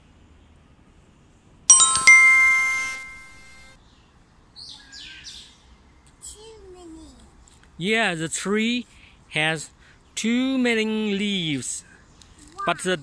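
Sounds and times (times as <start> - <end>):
two-note bell chime: 1.7 - 3.7.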